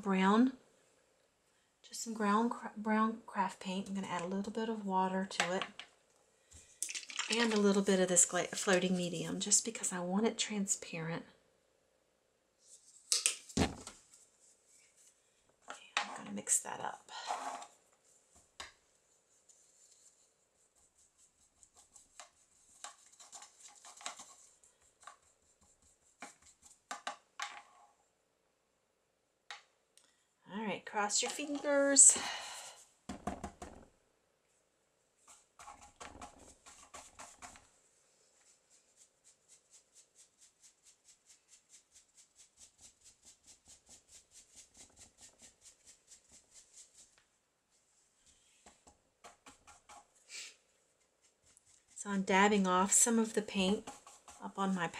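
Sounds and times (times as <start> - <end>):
paintbrush scrubbing on canvas: 14.0 - 15.2, 16.2 - 27.0, 35.2 - 54.9.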